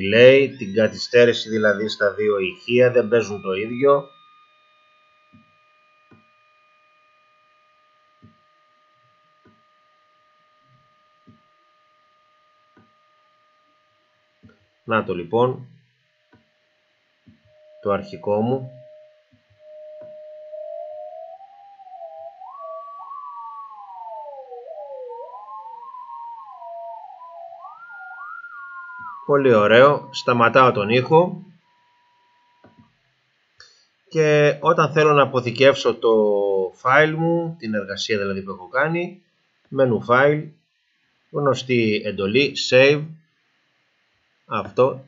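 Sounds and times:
electronic test tone: 0.0 - 14.2, 17.3 - 32.8.

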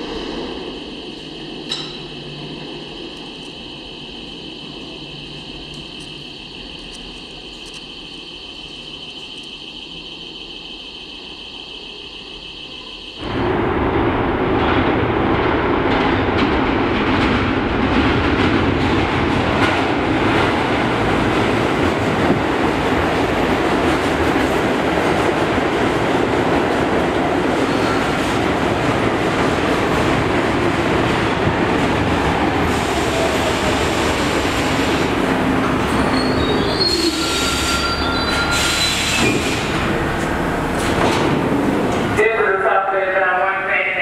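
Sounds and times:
train brake whine: 35.9 - 39.9.

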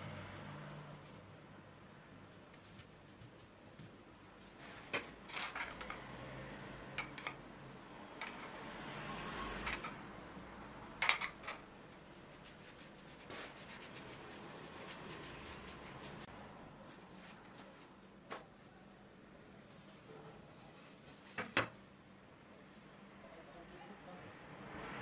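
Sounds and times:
pastry brush rubbing on dough: 11.9 - 16.3.

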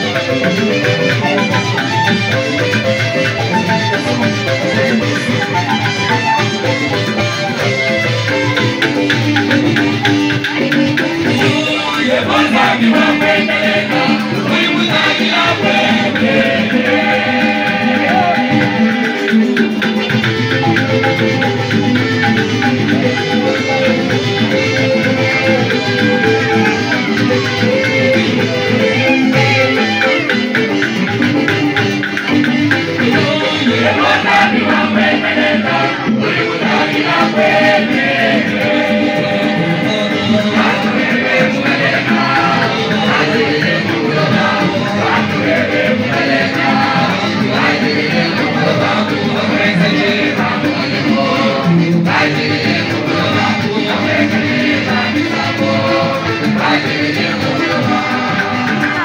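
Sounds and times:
instrumental backing: 0.0 - 59.0
choir singing a hymn: 11.3 - 19.8, 32.6 - 59.0.

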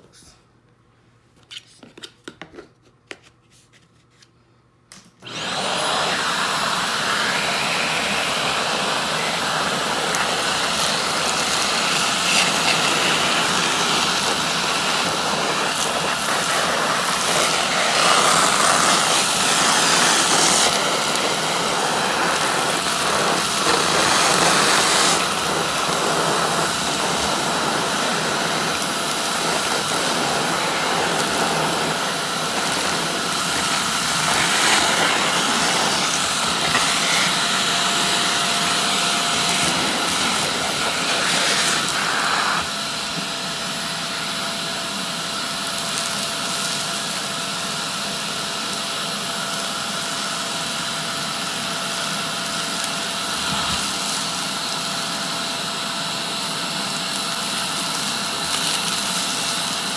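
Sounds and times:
vacuum cleaner running: 5.2 - 59.9.

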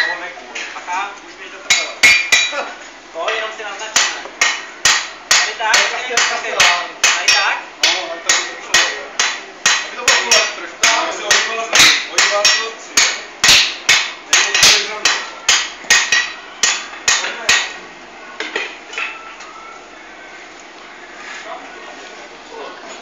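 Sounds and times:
hammers striking iron on anvil: 1.7 - 2.6, 3.9 - 17.8.

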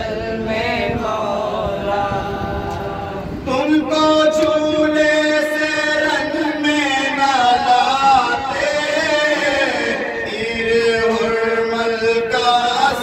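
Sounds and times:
men chanting a lament: 0.0 - 13.0.

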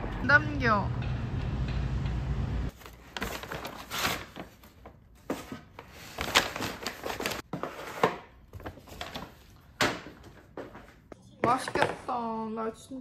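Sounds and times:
low traffic rumble: 0.0 - 2.7
paper bag rustling: 2.7 - 7.8.

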